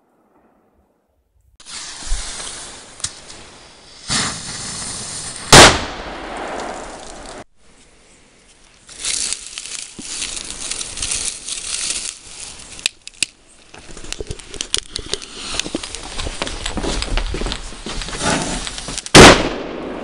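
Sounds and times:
dry grass rustling: 6.4s - 19.1s.

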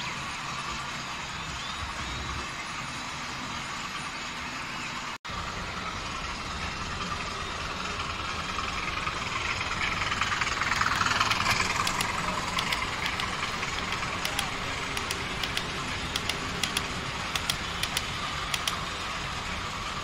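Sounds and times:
model train running on track: 5.3s - 20.0s
light clicking: 11.2s - 18.8s.

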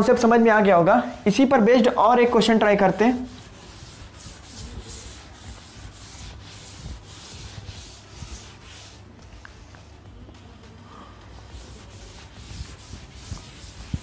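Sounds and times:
duster rubbing on chalkboard: 2.4s - 9.2s, 11.4s - 14.0s.

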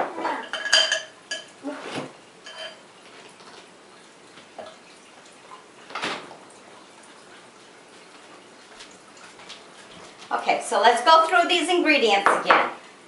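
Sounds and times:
spoon clinking and scraping in bowl: 0.4s - 1.6s, 2.4s - 2.8s.

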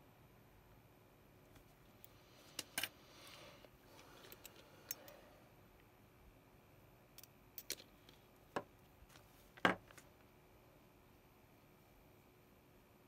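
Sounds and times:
small tools clicking and tapping: 7.2s - 8.7s.

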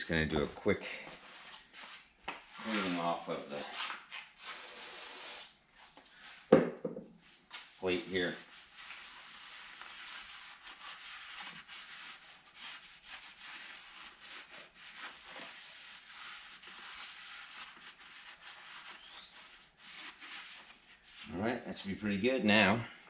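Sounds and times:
paper towel rubbing metal: 2.5s - 5.5s, 7.6s - 21.4s.

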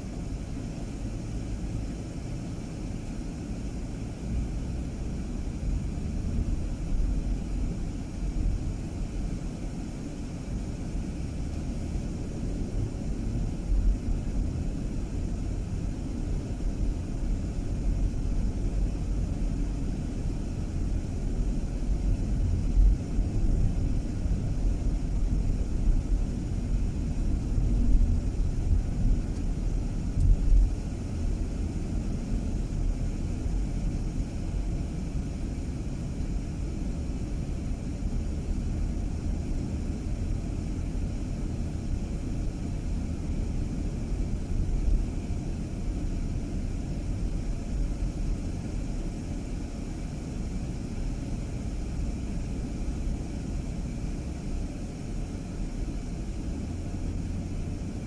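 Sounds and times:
car engine and road noise: 0.0s - 58.0s.

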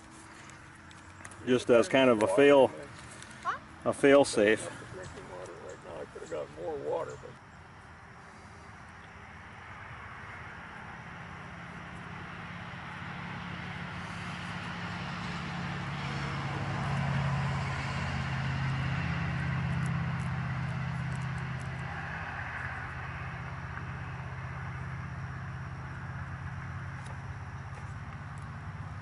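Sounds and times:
vehicle engine passing by: 8.1s - 29.0s.

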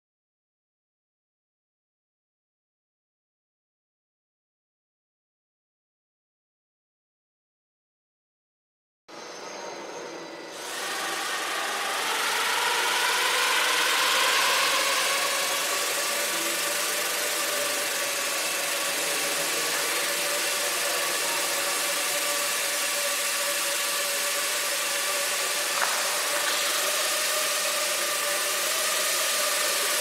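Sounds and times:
quadcopter motors humming: 9.2s - 30.0s.

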